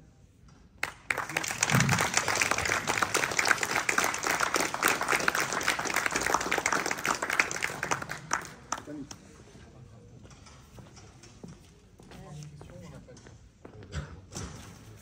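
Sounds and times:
audience applauding: 0.8s - 9.2s.

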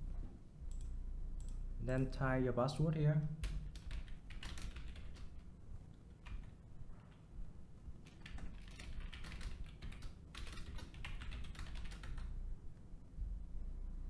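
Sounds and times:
computer keyboard typing: 3.4s - 5.4s, 6.1s - 6.6s, 8.0s - 12.3s.

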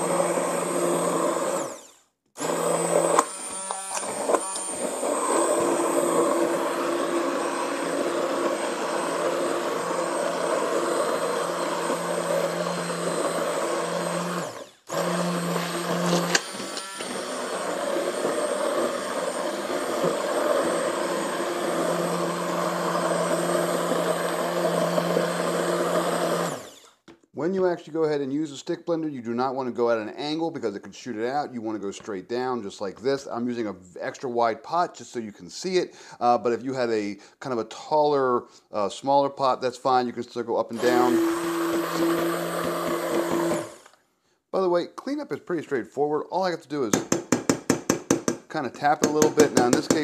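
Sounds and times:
immersion blender running: 0.0s - 26.9s, 40.8s - 44.0s.

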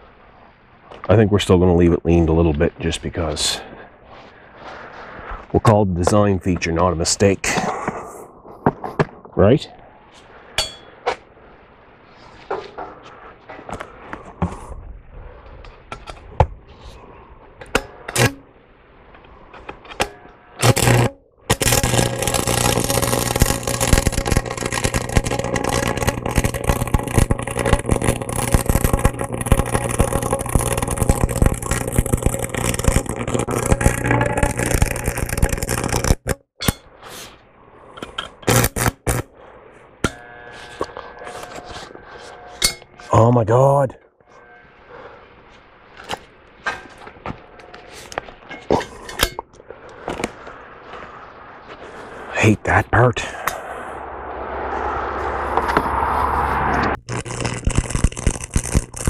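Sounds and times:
low hum: 0.0s - 59.0s
arc welder striking: 17.6s - 18.5s, 19.9s - 36.9s, 38.0s - 39.3s, 40.0s - 43.1s, 57.0s - 59.0s
crackling sizzling welding arc: 17.7s - 18.5s, 19.3s - 37.4s, 38.0s - 43.2s, 57.0s - 59.0s.

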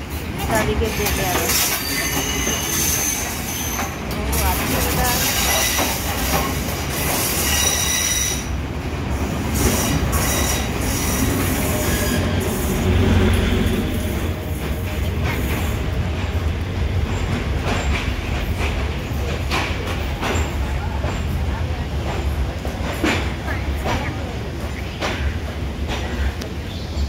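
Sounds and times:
train rumble: 0.0s - 27.0s
high wheel squeal: 0.9s - 4.0s, 7.2s - 8.6s, 9.6s - 12.7s.

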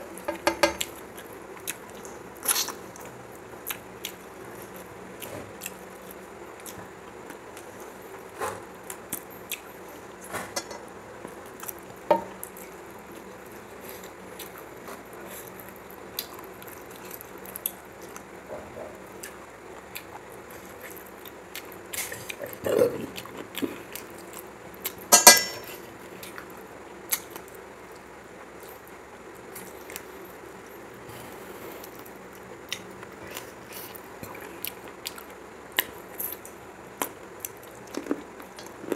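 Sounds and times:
fingers working food on metal plate: 0.3s - 0.9s, 10.6s - 10.8s.

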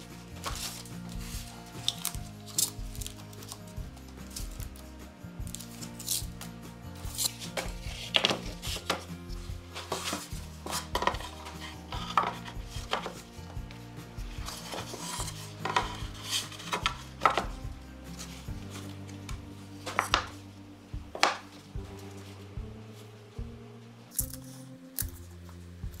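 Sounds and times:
background music: 0.0s - 26.0s
wooden boards knocking: 7.5s - 13.7s, 14.3s - 17.8s, 19.3s - 20.4s, 21.0s - 21.9s.

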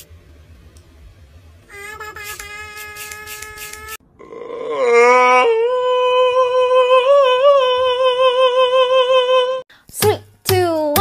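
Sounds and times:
person singing a long high note: 4.2s - 9.6s.

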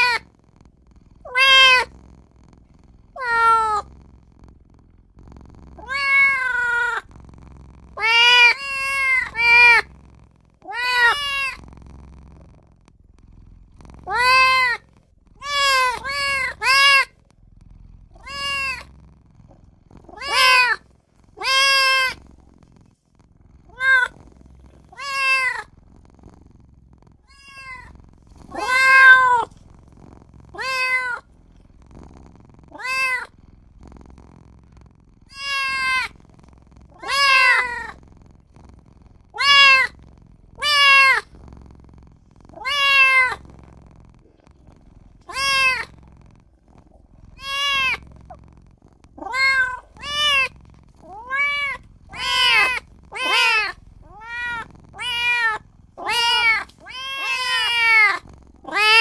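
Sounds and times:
kitten meowing: 0.0s - 0.2s, 1.2s - 1.9s, 3.2s - 3.9s, 5.8s - 7.0s, 8.0s - 9.9s, 10.6s - 11.6s, 14.0s - 14.8s, 15.4s - 17.2s, 18.2s - 18.9s, 20.1s - 20.8s, 21.4s - 22.2s, 23.7s - 24.1s, 24.9s - 25.7s, 27.3s - 29.6s, 30.5s - 31.2s, 32.7s - 33.3s, 35.3s - 36.2s, 36.9s - 38.0s, 39.3s - 40.0s, 40.6s - 41.3s, 42.6s - 43.4s, 45.2s - 46.0s, 47.4s - 48.1s, 49.2s - 59.0s.

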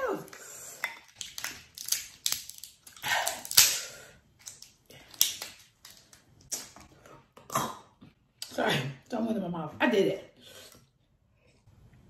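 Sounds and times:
lobster shell cracking: 0.8s - 3.8s, 4.4s - 6.8s.

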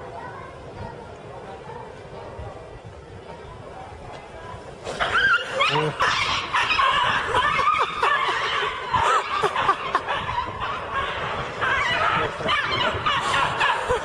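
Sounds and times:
people laughing and snickering: 4.9s - 14.0s.

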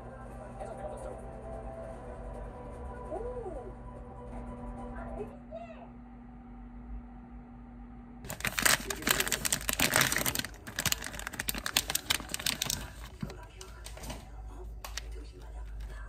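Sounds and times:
plastic tray clicks and rustles: 8.3s - 14.2s
plastic wrapper crinkling: 8.3s - 14.2s, 14.8s - 16.0s.

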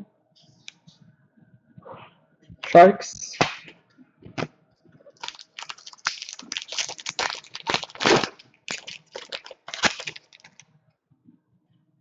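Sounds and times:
foil wrapper crinkling and tearing: 5.1s - 10.6s.

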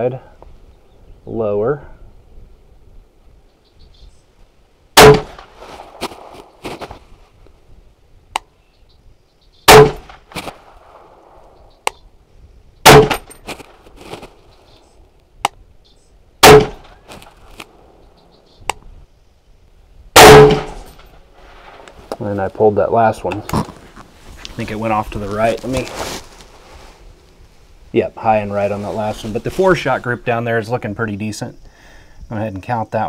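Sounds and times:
rifle shots with ringing echo: 5.0s - 6.3s, 9.7s - 11.4s, 12.8s - 13.3s, 16.4s - 17.0s, 20.2s - 21.8s.

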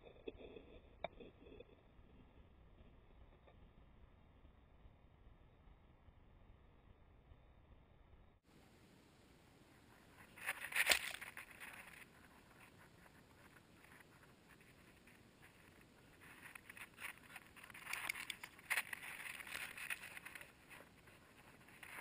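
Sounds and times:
dog paws scrabbling through snow: 10.2s - 12.5s, 14.5s - 22.0s.

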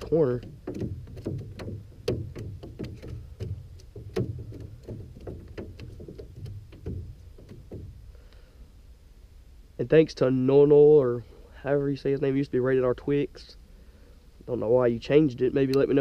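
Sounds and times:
knocks against aluminum boat hull: 0.0s - 8.1s.

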